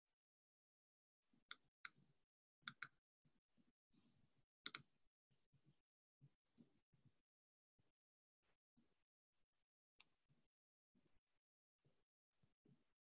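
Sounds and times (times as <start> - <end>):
computer mouse clicks: 2.7 - 3.0, 4.7 - 4.9.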